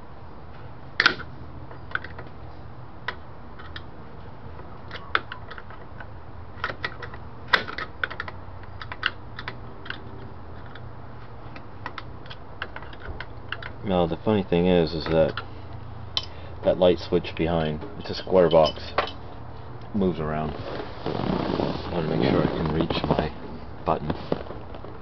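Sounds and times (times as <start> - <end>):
awl clicking and scraping on metal nut: 4.9 - 10.9, 11.5 - 13.8.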